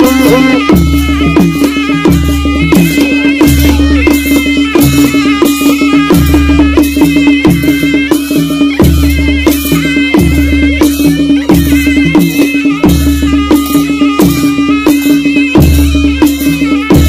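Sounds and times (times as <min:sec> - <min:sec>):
steady held tone: 0:00.0 - 0:01.7
drums struck on a beat: 0:00.0 - 0:17.0
reed pipe melody: 0:00.0 - 0:17.0.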